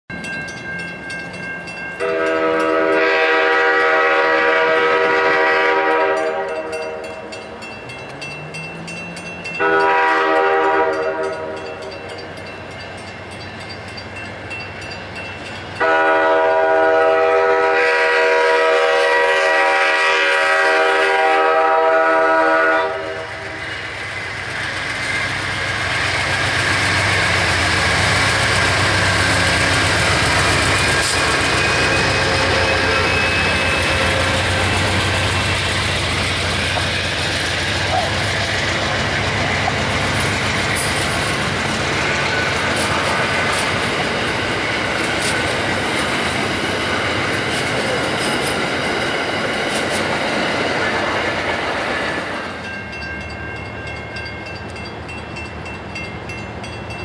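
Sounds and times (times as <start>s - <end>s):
train engine and wheels rumbling: 0.1s - 57.0s
locomotive air horn blasts: 2.0s - 7.1s, 9.6s - 11.8s, 15.8s - 23.6s, 31.0s - 35.3s.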